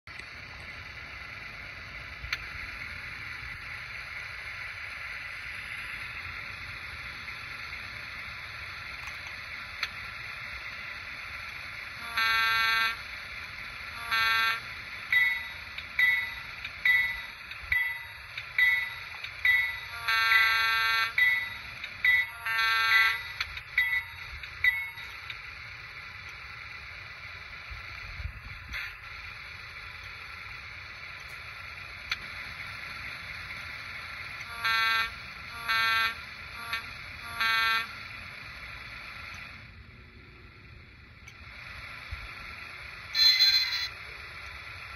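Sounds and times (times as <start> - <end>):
diesel locomotive idling: 0.1 - 44.9
air horn blasts: 12.0 - 13.0, 14.0 - 14.6, 34.5 - 37.9
bell ringing: 15.1 - 25.2, 43.2 - 44.0.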